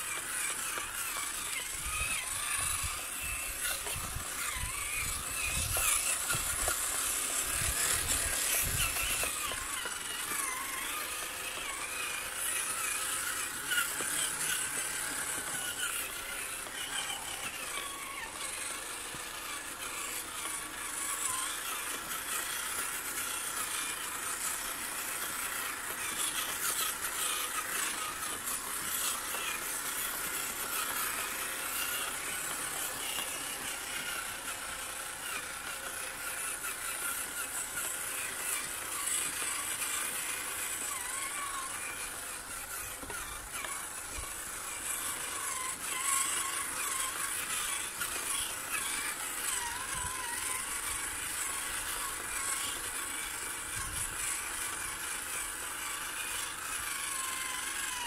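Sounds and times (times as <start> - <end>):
toy car electric motor whining: 0.0 - 58.0.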